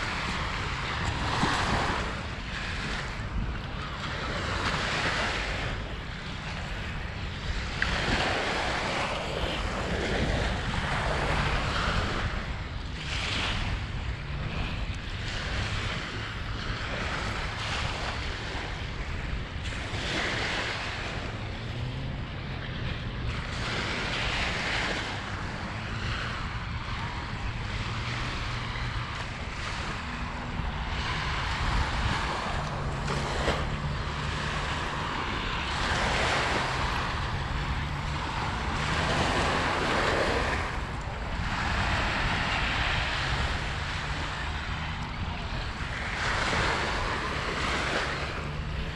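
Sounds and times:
waves washing onto beach: 0.0s - 48.9s
wind buffeting microphone: 0.0s - 48.9s.

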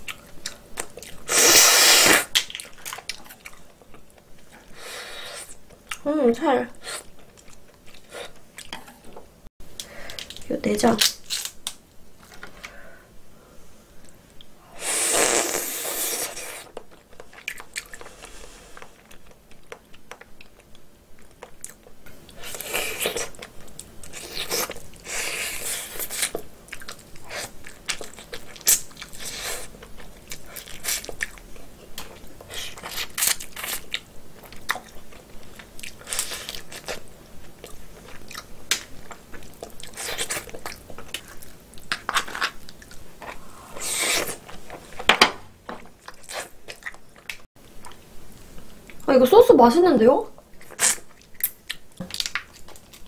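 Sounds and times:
chewing and mouth sounds: 0.0s - 1.3s, 2.1s - 4.7s, 6.9s - 9.2s, 15.5s - 45.1s, 45.8s - 49.1s, 50.4s - 53.0s.

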